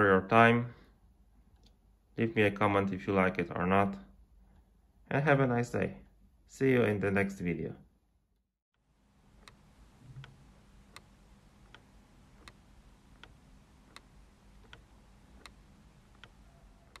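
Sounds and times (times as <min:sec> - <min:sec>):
pendulum clock ticking: 0:09.3 - 0:17.0.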